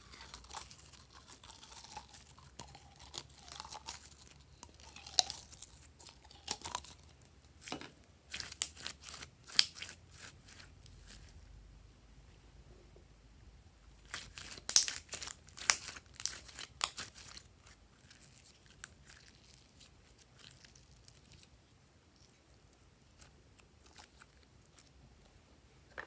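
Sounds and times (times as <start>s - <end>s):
slime crackling and tearing: 0.0s - 7.7s, 8.3s - 11.3s, 14.0s - 21.5s.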